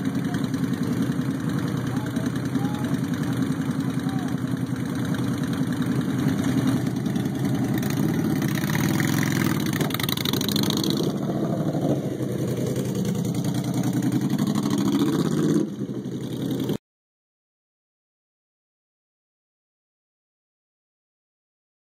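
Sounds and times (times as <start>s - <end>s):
motorcycle engine revving: 0.0s - 16.8s
second motorcycle engine: 0.0s - 16.8s.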